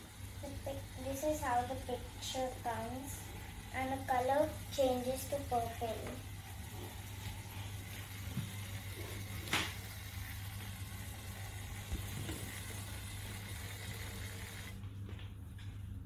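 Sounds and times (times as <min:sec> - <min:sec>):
small electric motor running: 0:06.0 - 0:14.8.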